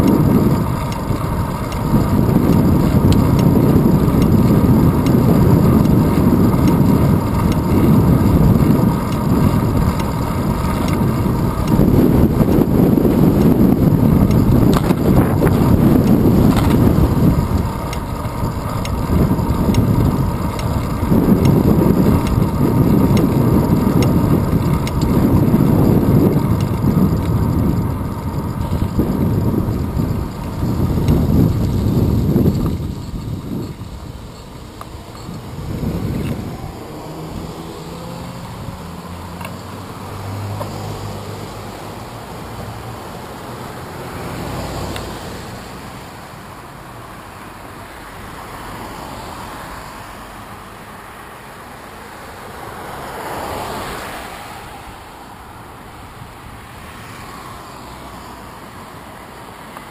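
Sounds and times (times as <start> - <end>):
wind buffeting microphone: 0.0 - 42.6
bicycle tyres rolling on asphalt: 0.0 - 59.9.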